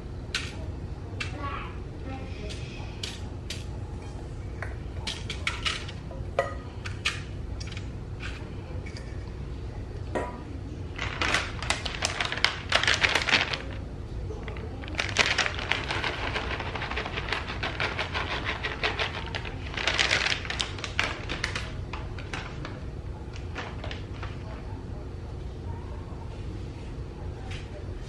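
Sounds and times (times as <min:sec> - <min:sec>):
plastic bag crinkling: 0:10.9 - 0:24.7.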